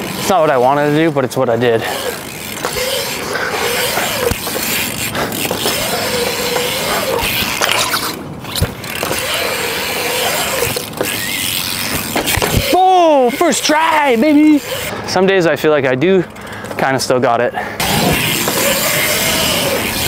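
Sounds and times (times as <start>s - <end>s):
bike tyres rolling on concrete: 0.0s - 20.0s.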